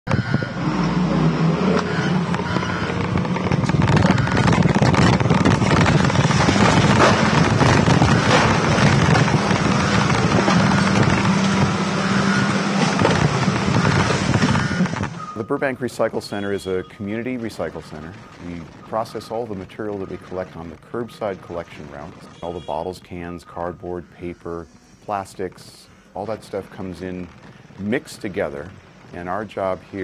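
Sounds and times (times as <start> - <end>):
loader engine humming: 0.0 - 30.0
knocks and rattles: 1.8 - 22.4.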